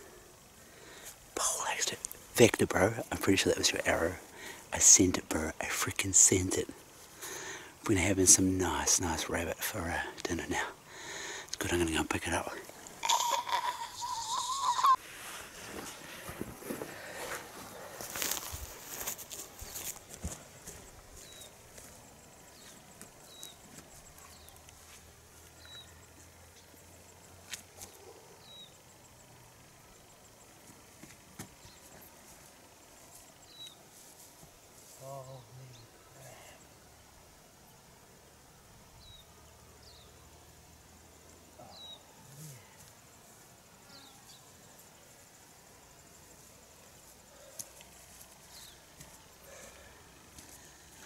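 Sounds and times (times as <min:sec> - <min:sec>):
high insect trill: 0:00.0 - 0:51.0.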